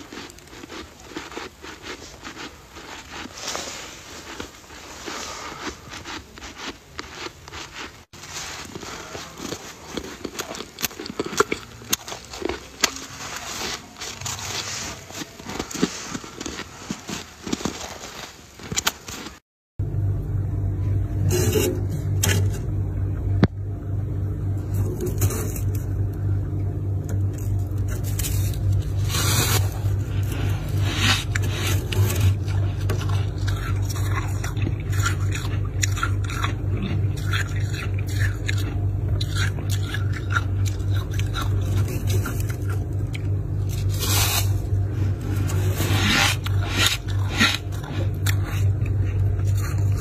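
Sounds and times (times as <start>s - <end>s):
crunching frost: 0.0s - 19.4s, 24.6s - 26.2s, 27.1s - 50.0s
freezer humming: 0.0s - 50.0s
rustling scrapes: 0.2s - 10.8s, 12.1s - 19.4s, 21.2s - 22.6s, 24.6s - 25.9s, 27.4s - 34.5s, 43.6s - 50.0s.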